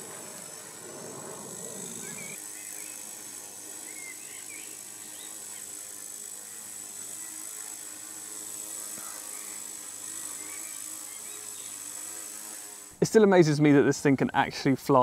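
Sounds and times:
rc helicopter rotor buzzing: 0.0 - 14.1.

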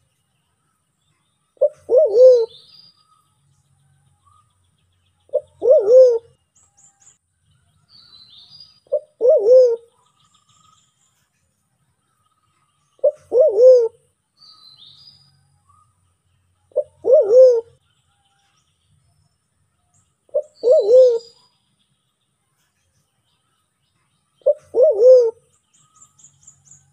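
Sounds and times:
dove calling: 1.6 - 2.7, 5.3 - 6.4, 8.8 - 10.0, 13.0 - 14.0, 16.7 - 17.8, 20.3 - 21.4, 24.4 - 26.9.

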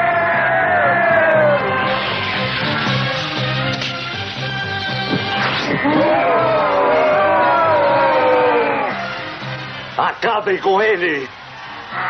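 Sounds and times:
cartoon action music: 0.7 - 9.4.

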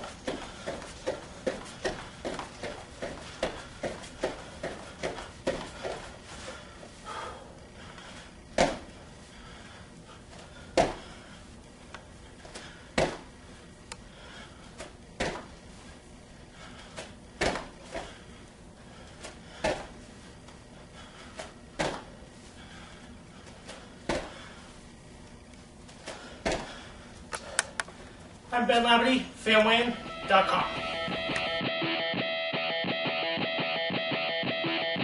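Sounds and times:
feet thudding on gym mat: 0.0 - 7.4, 8.0 - 9.4, 10.3 - 11.4, 12.4 - 13.4, 14.7 - 16.0, 16.6 - 18.3, 19.0 - 24.7, 25.8 - 27.2.

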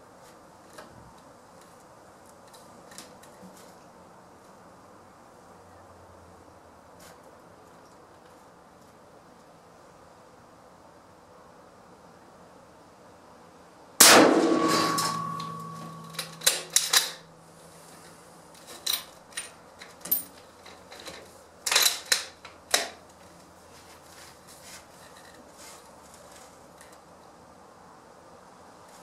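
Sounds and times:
rifle shot: 14.0 - 17.2
rifle action metallic clicks: 15.1 - 17.2.

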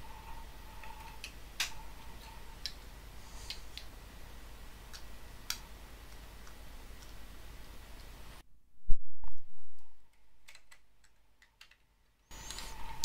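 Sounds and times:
plastic parts clicking: 10.4 - 11.9.

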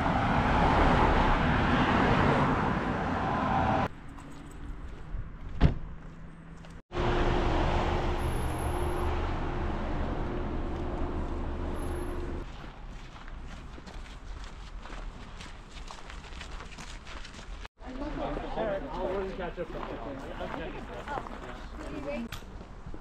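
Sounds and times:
car road rumble: 0.0 - 13.8.

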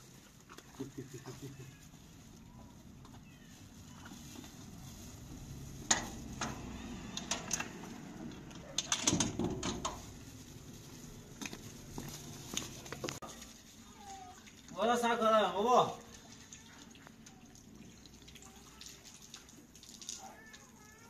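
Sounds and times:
plastic bags rustling: 0.0 - 14.6.

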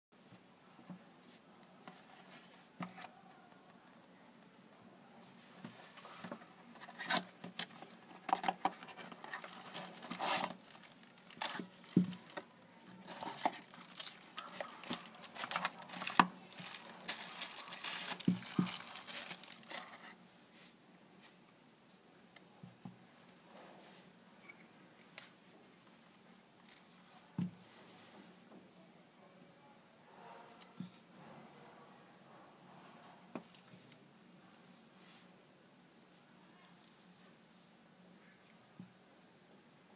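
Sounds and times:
packaging crinkling and rustling: 6.2 - 20.2.

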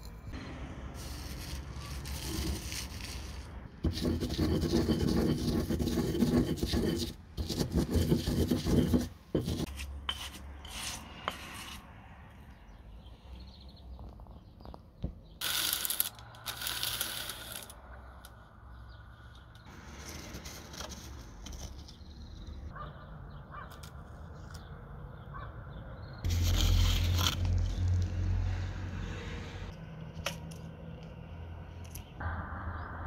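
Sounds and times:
pestle grinding in stone mortar: 1.9 - 11.6.

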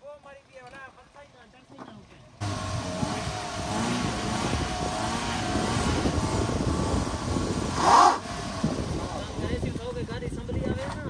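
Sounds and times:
car engine revving: 2.4 - 10.0.

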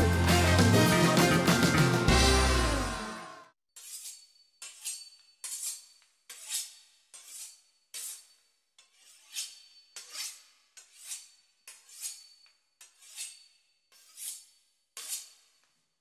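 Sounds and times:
knife sawing through pastry crust: 3.8 - 15.6.

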